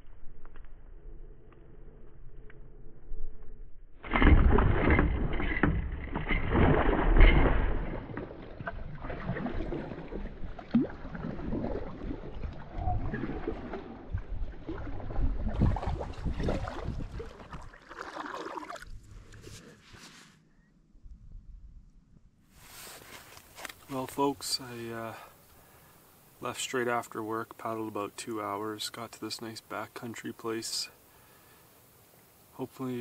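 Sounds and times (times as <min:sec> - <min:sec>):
water gurgling and splashing: 0:04.1 - 0:19.0
canoe paddle strokes in water: 0:04.1 - 0:20.3, 0:22.6 - 0:24.1.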